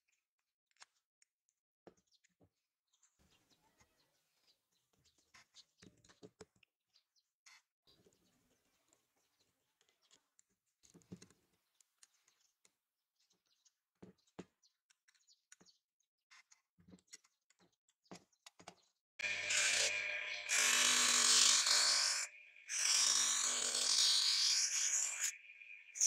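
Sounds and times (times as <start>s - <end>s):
electric disc sander running: 19.2s - 26.0s.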